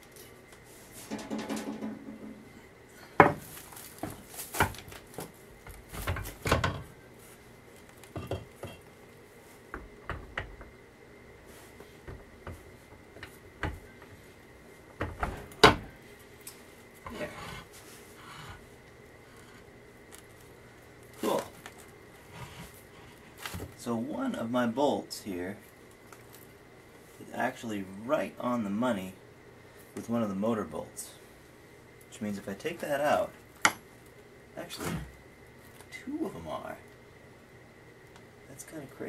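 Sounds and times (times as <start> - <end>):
metal clanks and knocks: 1.0 - 2.5.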